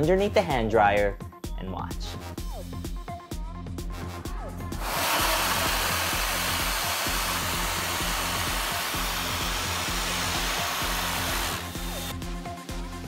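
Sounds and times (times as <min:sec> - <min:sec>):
electric hand dryer blowing: 0:04.8 - 0:12.2.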